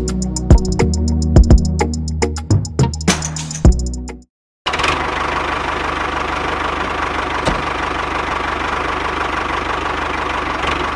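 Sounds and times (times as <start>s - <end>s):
engine idling: 4.7s - 10.9s.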